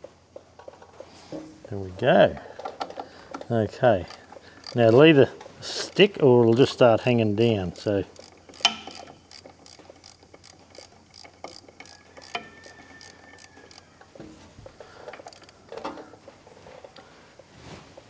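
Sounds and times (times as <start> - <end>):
ratchet clicking: 4.0 - 5.1, 5.7 - 13.9, 15.2 - 15.6.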